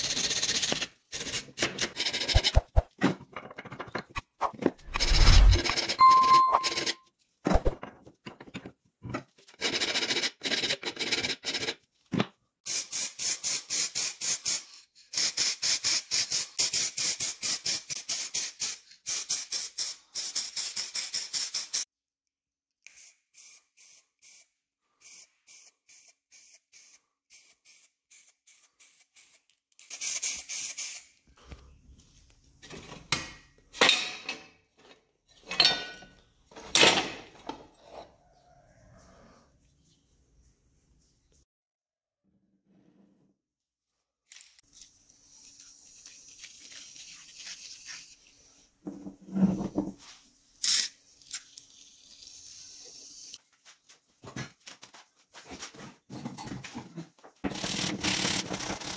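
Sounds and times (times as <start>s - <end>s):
rapid scraping strokes: 0.0s - 2.9s, 4.8s - 6.0s.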